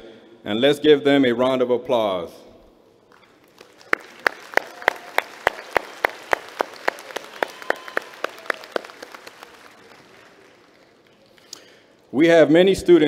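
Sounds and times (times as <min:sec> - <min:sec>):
audience applauding: 0:03.1 - 0:11.5
close hand claps: 0:03.1 - 0:11.8.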